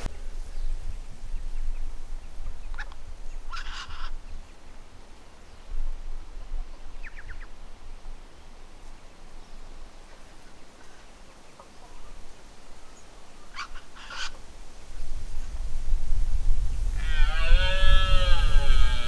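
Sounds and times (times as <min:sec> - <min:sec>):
wind rumble on microphone: 0:00.0 - 0:04.7, 0:14.4 - 0:19.0
harsh bird calls: 0:02.6 - 0:04.4, 0:12.9 - 0:14.4.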